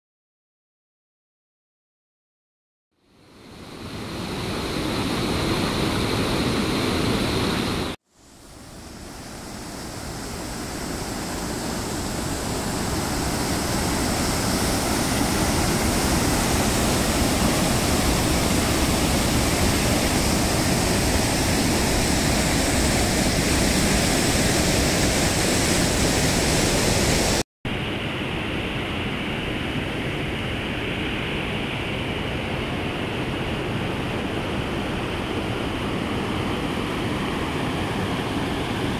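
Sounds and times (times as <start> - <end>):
fast-flowing water rushing: 3.4 - 27.4, 35.8 - 38.9.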